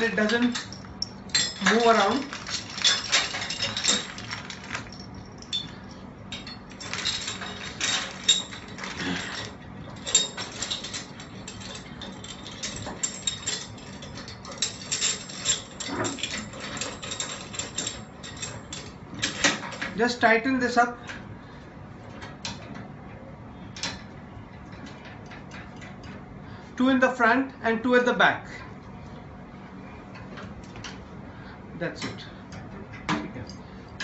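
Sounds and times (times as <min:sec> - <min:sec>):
metallic clicks and clinks: 0:00.0 - 0:20.0.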